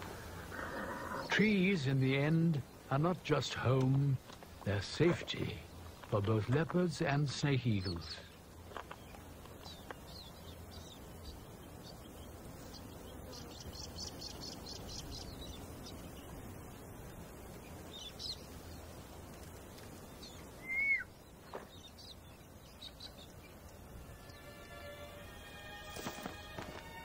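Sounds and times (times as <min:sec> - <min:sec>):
insect calls: 0:00.0 - 0:27.0
soft steady hiss: 0:00.0 - 0:27.0
small bird chirps: 0:07.7 - 0:24.9
whistled bird call slurring downward: 0:20.6 - 0:21.2.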